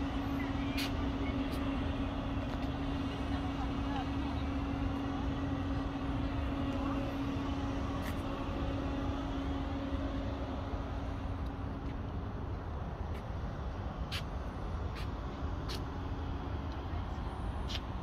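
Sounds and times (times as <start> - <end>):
engine hum: 0.0 - 18.0.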